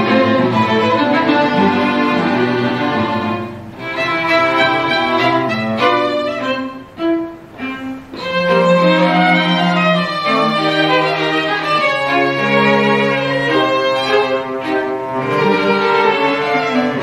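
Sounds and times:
string quartet bowed notes: 0:00.0 - 0:17.0.

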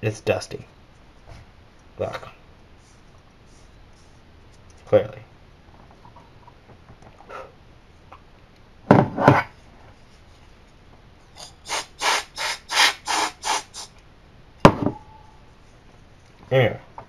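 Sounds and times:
compressed air spray blasts: 0:11.4 - 0:13.9.

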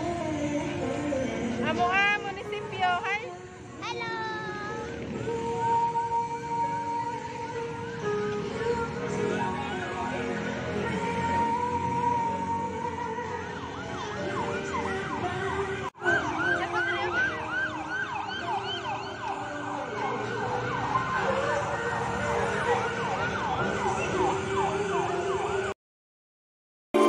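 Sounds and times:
background music: 0:00.0 - 0:25.7
siren-like wail: 0:13.3 - 0:25.7.

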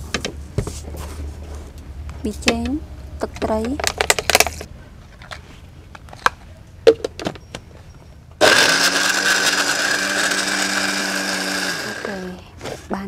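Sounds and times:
electric blender running: 0:08.4 - 0:12.4.

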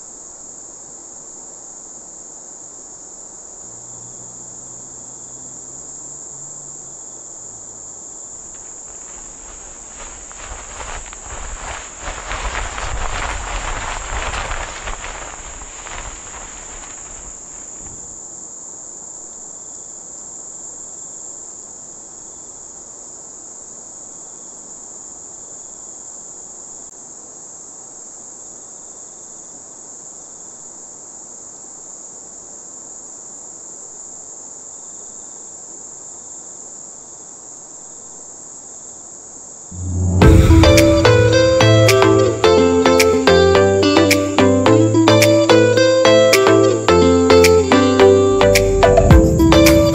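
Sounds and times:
insect shrilling: 0:04.2 - 0:18.2, 0:39.8 - 0:49.9
loud rushing noise: 0:39.8 - 0:43.6, 0:48.0 - 0:49.9.

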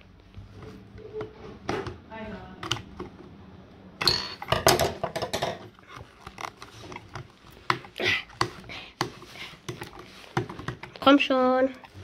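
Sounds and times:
plastic packaging scrape: 0:05.7 - 0:07.7.

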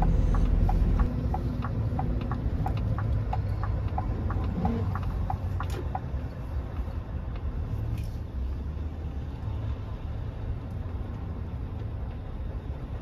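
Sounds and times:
indicator ticking: 0:00.0 - 0:06.2
lorry engine rumble: 0:00.0 - 0:13.0.

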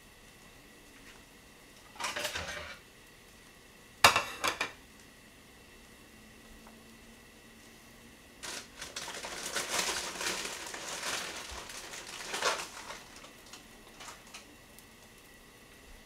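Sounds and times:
crinkling of crumpling: 0:08.4 - 0:15.2.

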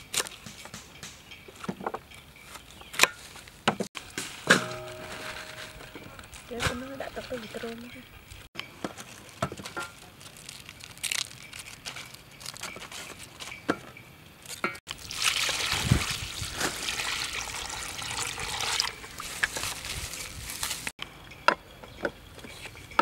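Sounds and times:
water pouring into metal bowl: 0:14.9 - 0:19.3.

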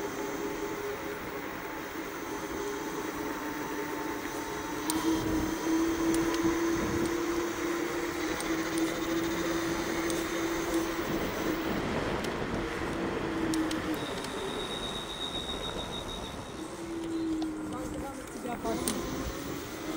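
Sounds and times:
electric scooter motor whine: 0:00.0 - 0:19.9
wind noise: 0:00.0 - 0:19.9.

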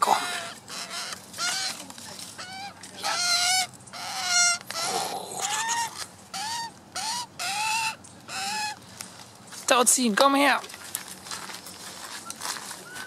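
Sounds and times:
magpie squawking: 0:00.0 - 0:08.8.

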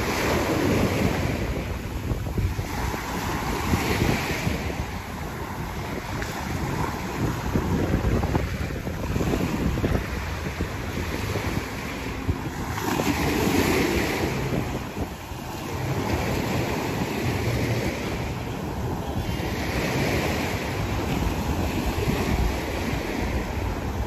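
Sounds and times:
small waves breaking on sand: 0:00.0 - 0:24.0
wind buffeting microphone: 0:00.0 - 0:24.0.

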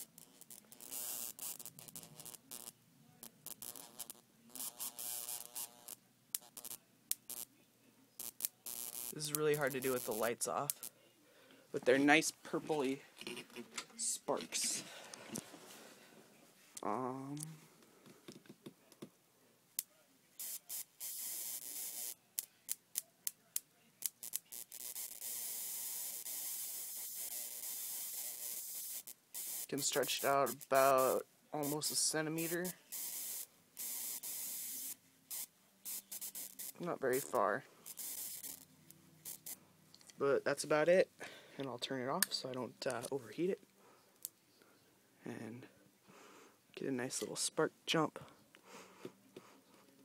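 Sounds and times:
electric spark crackling: 0:00.0 - 0:07.5, 0:08.2 - 0:10.9, 0:20.4 - 0:23.4, 0:24.0 - 0:39.6
hissing electric arc: 0:00.0 - 0:07.5, 0:08.2 - 0:10.9, 0:20.4 - 0:23.1, 0:24.0 - 0:39.6
sharp spark snaps: 0:00.0 - 0:07.5, 0:08.2 - 0:10.9, 0:19.8 - 0:39.6.

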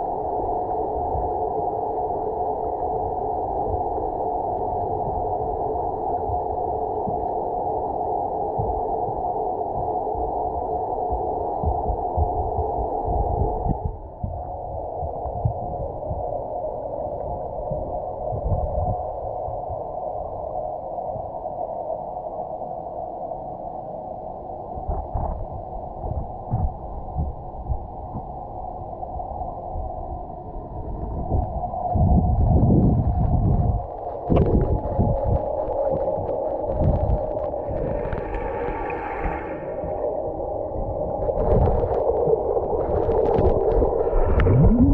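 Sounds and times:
underwater watery rumble: 0:00.0 - 0:19.9, 0:24.8 - 0:44.9
underwater hiss: 0:37.6 - 0:40.3
gurgles: 0:44.3 - 0:44.9.

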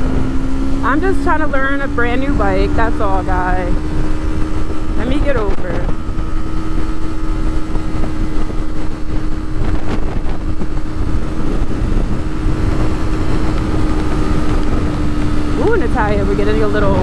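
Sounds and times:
motorcycle engine running: 0:00.0 - 0:17.0
wind rumble on microphone: 0:00.0 - 0:17.0.

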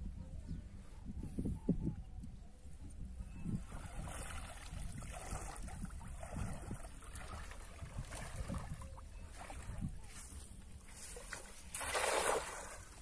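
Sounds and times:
small water splashes: 0:03.6 - 0:10.0, 0:10.9 - 0:13.0
water sloshing around wading legs: 0:03.6 - 0:13.0.

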